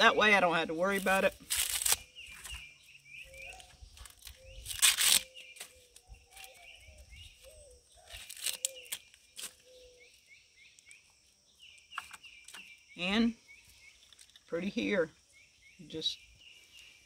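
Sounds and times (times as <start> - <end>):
birds chirping: 0.0 - 17.0
corn silks rustling scrapes: 0.7 - 2.6, 3.3 - 9.7.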